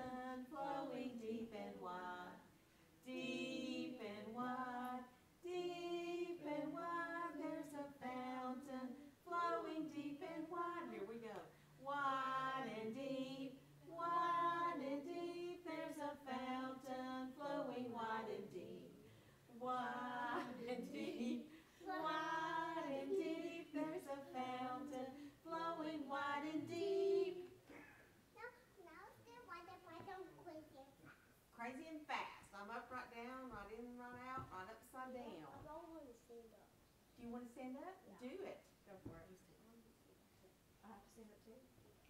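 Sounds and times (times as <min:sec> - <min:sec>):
women and children singing: 0:00.0 - 0:27.7
children singing along: 0:19.6 - 0:25.1.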